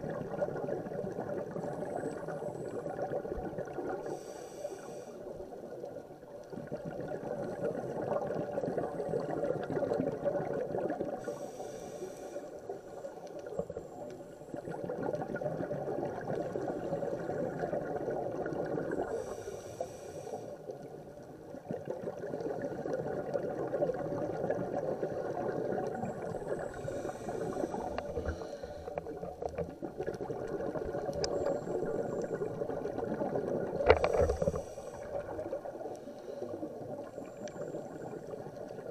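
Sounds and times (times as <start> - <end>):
exhaust bubbles rushing underwater: 0.0 - 4.1, 5.6 - 11.4, 14.5 - 19.3, 21.5 - 38.9
scuba regulator inhale hiss: 4.0 - 5.4, 11.2 - 13.0, 19.0 - 20.7, 26.5 - 29.0, 34.0 - 35.4.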